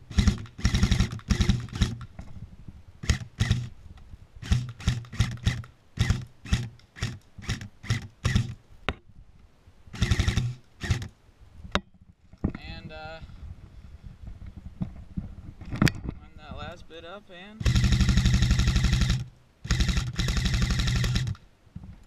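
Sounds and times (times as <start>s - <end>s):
airsoft rifle firing bursts: 0.1s - 2.0s, 9.9s - 11.1s, 17.6s - 21.4s.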